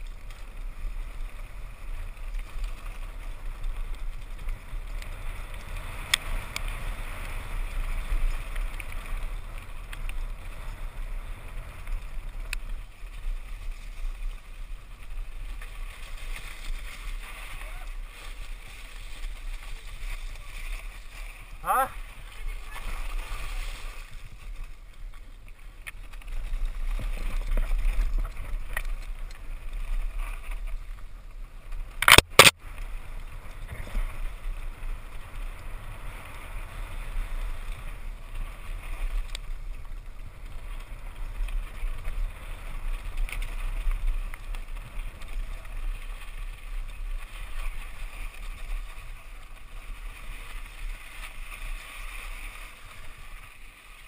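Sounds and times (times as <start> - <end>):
bike tyre and frame rattle: 0.0 - 54.0
wind rumble on microphone: 0.0 - 54.0.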